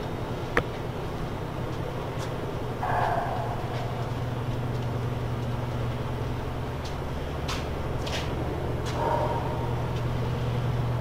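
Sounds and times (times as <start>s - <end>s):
low machinery hum: 0.0s - 11.0s
footsteps on concrete: 6.8s - 9.0s.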